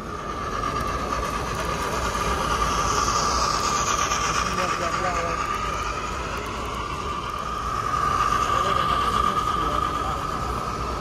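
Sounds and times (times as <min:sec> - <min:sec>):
model train whine: 0:00.0 - 0:11.0
murmur of people talking: 0:00.0 - 0:11.0.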